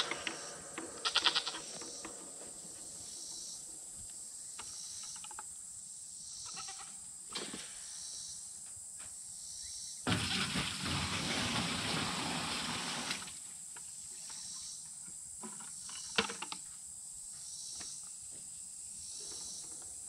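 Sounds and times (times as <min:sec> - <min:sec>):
sharp knock: 0:00.0 - 0:02.7
water splashing into metal tank: 0:10.1 - 0:13.4.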